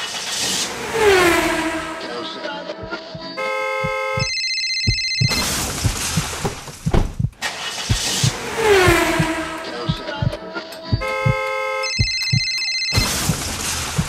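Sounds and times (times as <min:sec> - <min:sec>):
sharp knocks and clicks: 0:02.8 - 0:14.0
electronic tones: 0:03.4 - 0:06.3, 0:08.8 - 0:13.5.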